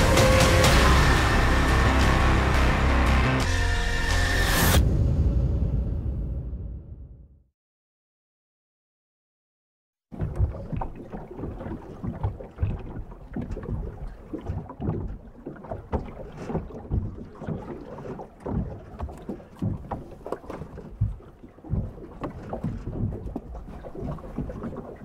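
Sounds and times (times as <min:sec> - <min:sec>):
small waves lapping against boat: 0:10.1 - 0:25.0.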